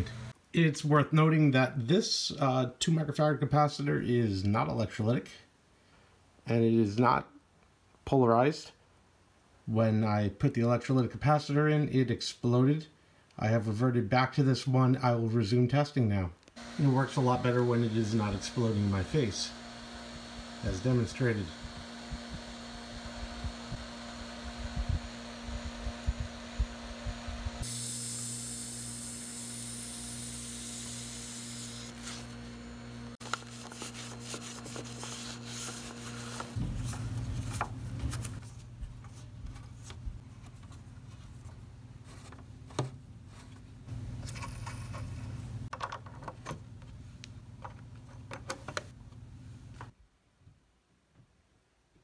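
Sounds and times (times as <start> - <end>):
tape recorder hum: 0.0 - 0.4, 16.4 - 45.8
cloth rubbing: 33.2 - 38.8.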